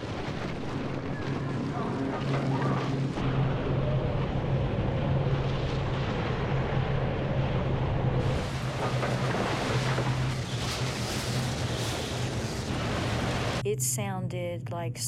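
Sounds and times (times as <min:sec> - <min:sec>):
tornado wind roar: 0:00.0 - 0:13.6
low steady hum: 0:12.4 - 0:15.0.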